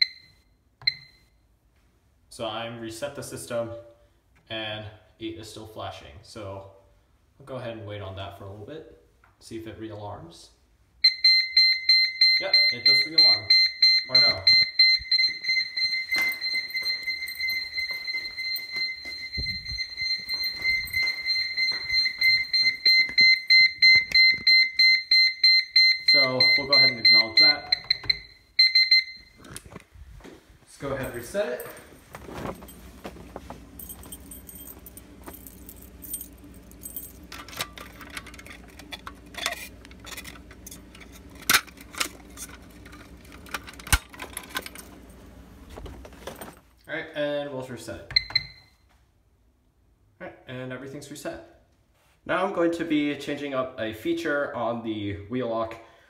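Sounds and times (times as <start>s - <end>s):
high-pitched alarm beeping: 11.0s - 29.4s
keys jangling: 31.0s - 45.0s.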